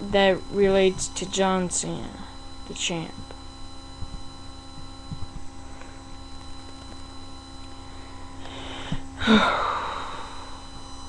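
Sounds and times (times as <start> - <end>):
steady electrical hum: 0.0 - 11.0
breath on microphone: 8.4 - 9.1.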